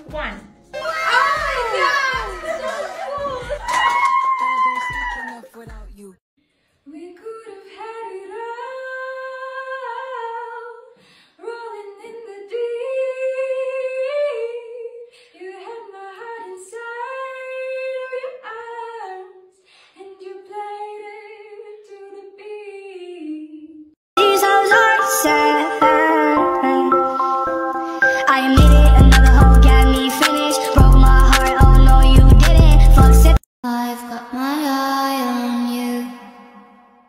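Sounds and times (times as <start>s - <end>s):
woman singing wordless notes: 24.2s - 37.0s.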